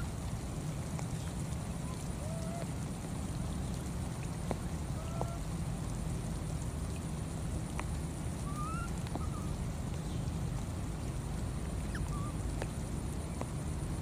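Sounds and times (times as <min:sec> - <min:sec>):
faint ticks: 0:00.0 - 0:08.1, 0:08.8 - 0:09.3, 0:09.9 - 0:14.0
low outdoor rumble: 0:00.0 - 0:14.0.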